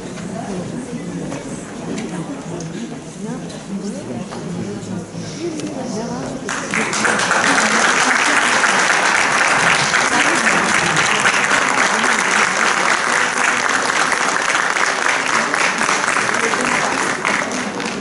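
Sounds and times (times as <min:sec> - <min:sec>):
audience applauding: 0:06.5 - 0:18.0.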